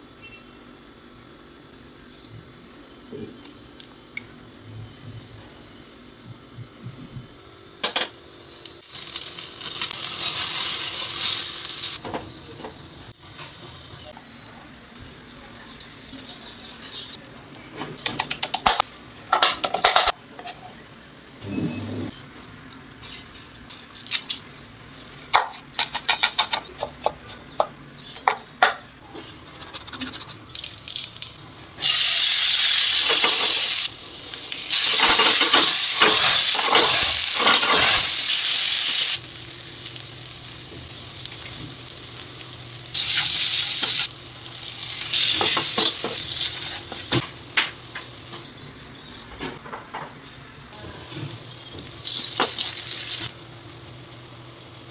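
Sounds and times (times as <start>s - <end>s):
onions sizzling in hot oil: 8.4s - 12.0s, 30.6s - 48.4s, 51.3s - 54.9s.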